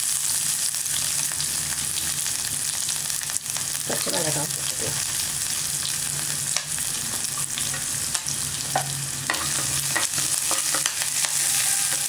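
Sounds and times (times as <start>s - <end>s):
hot oil sizzling in a pan: 0.0s - 12.0s
wooden spatula scraping pan: 8.8s - 12.0s.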